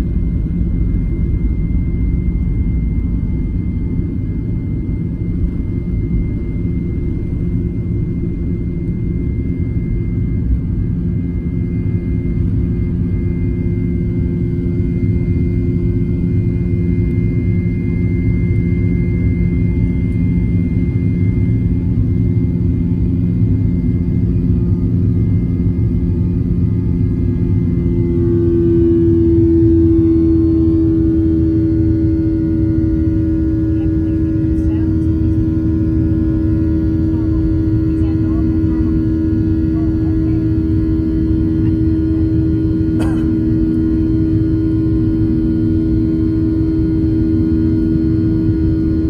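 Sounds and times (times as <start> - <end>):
jet engines roaring: 15.8 - 49.0.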